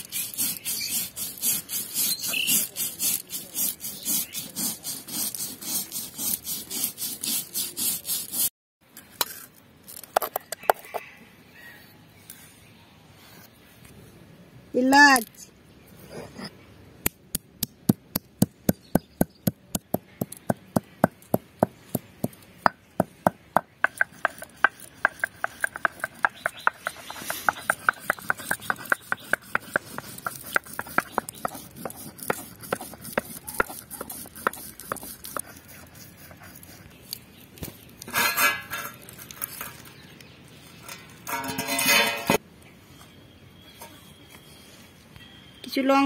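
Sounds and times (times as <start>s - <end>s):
stone rubbing on stone: 0.0s - 8.5s, 18.7s - 39.8s
stone roller knocking: 17.9s - 35.4s.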